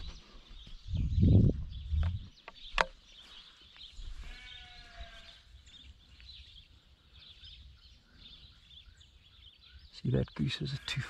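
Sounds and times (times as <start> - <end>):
sharp click: 2.0 - 3.0
sheep bleating: 4.2 - 5.4.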